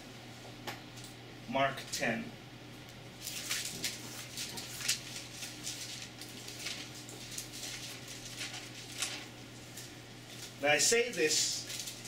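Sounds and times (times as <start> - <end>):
paper pages rustling: 3.2 - 10.6, 11.6 - 12.0.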